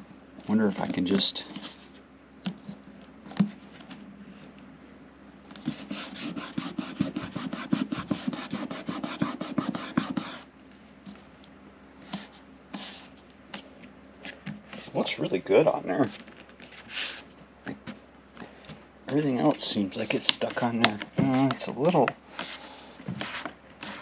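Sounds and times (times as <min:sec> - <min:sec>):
hand rubbing plastic panel: 0:05.5 - 0:10.4, 0:19.1 - 0:24.0.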